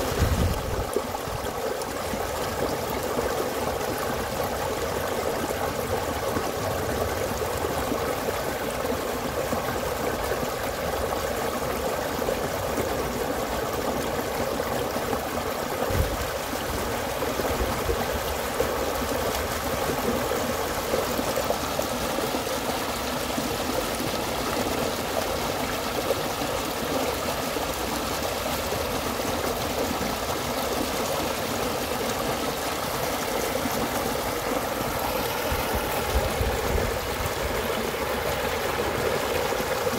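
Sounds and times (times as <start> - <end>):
stream water rushing: 0.0 - 39.9
low thud: 15.9 - 16.2.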